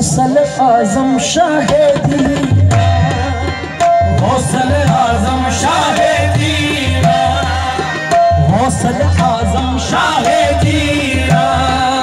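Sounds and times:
harmonium: 0.0s - 12.0s
man singing: 0.0s - 12.0s.

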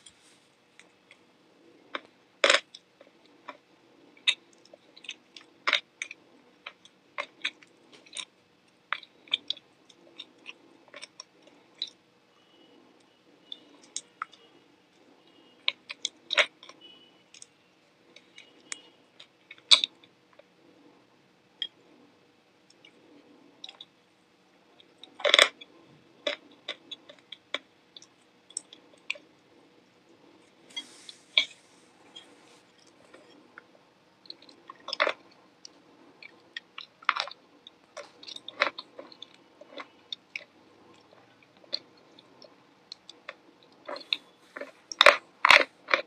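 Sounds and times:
chewing and lip smacking: 1.8s - 8.3s, 8.9s - 12.0s, 22.7s - 24.0s, 31.4s - 46.0s.

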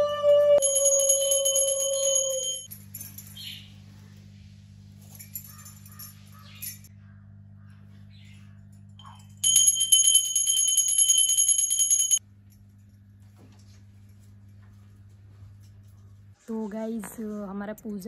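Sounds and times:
conch shell blown: 0.0s - 2.4s
low room hum: 0.0s - 18.0s
hand bell ringing rapidly: 0.6s - 3.3s, 9.4s - 12.2s
faint clinks: 0.6s - 3.7s, 5.0s - 6.9s, 8.7s - 16.0s.

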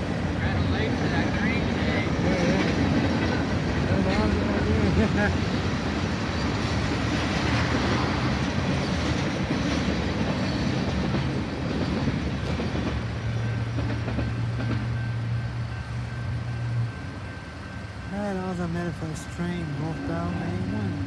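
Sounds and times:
train wheels clacking on rails: 0.0s - 21.0s
faint high whine: 14.4s - 21.0s.

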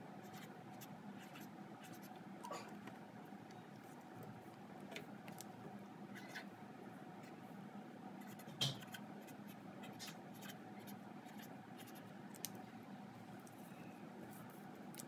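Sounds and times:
marker scratching on paper: 0.2s - 2.1s, 8.2s - 12.0s.

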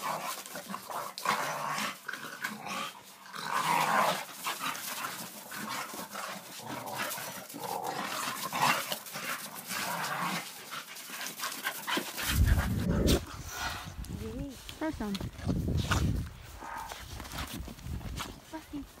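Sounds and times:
dogs play-fighting noises: 0.0s - 19.0s.

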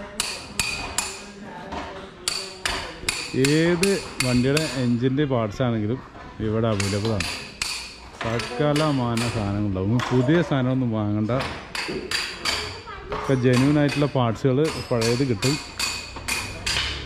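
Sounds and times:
hammer striking steel: 0.2s - 1.2s, 2.3s - 4.9s, 6.7s - 9.6s, 13.4s - 17.0s
man talking: 3.3s - 7.3s, 8.2s - 11.5s, 13.3s - 15.6s.

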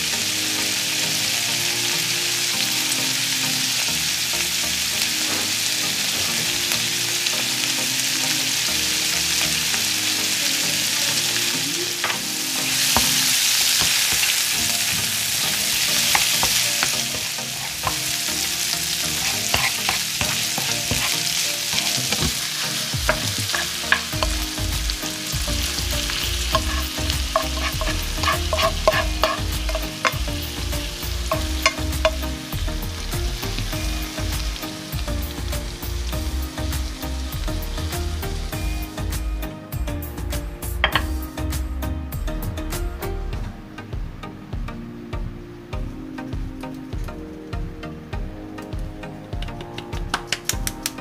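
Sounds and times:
shrimp sizzling in frying pan: 0.0s - 39.5s, 40.8s - 41.5s
wooden spatula scraping pan: 12.8s - 24.5s, 25.6s - 30.3s.

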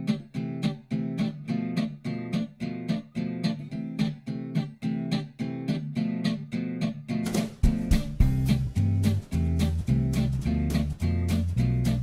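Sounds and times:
strummed acoustic guitar: 0.0s - 12.0s.

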